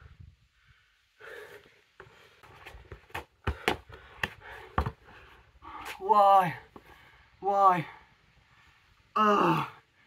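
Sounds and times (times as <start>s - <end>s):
football thumps on paving: 2.6s - 5.0s.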